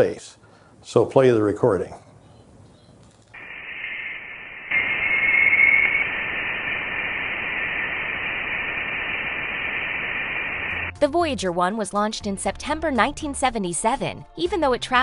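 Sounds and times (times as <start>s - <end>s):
steady hiss: 3.3s - 10.9s
whistling tone: 3.4s - 10.8s.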